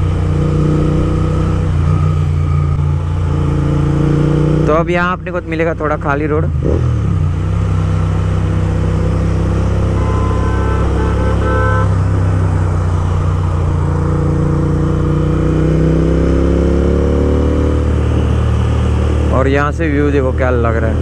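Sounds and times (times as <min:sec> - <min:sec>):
motorcycle engine accelerating: 0:00.0 - 0:21.0.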